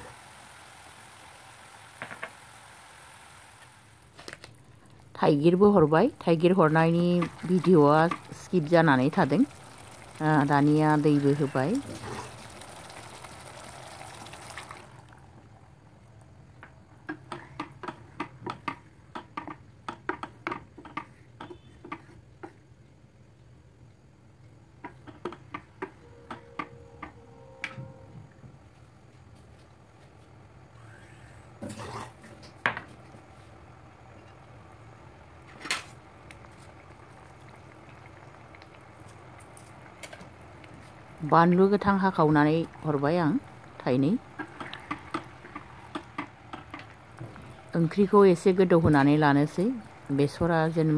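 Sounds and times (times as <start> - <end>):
water pouring into frying pan: 6.8 - 15.8, 36.0 - 48.0, 48.6 - 50.9.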